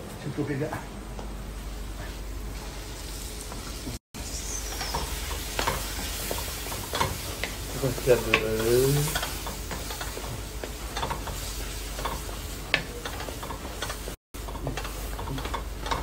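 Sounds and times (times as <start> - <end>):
food sizzling in pot: 2.3 - 14.2.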